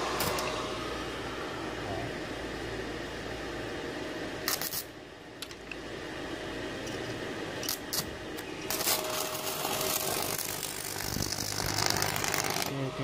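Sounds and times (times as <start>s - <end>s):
fan hum: 0.0s - 13.0s
welding arc crackling: 4.4s - 5.0s, 7.6s - 13.0s.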